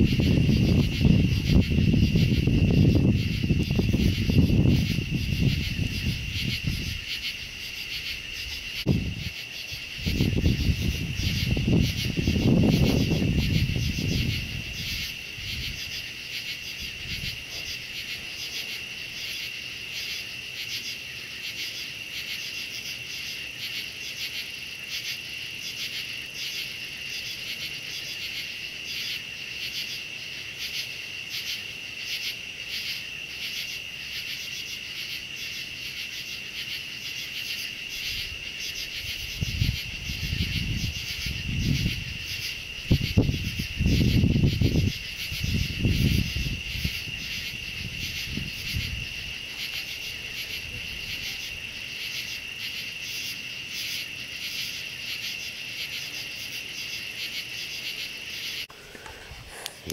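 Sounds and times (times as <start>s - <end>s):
insects trilling: 0.0s - 59.9s.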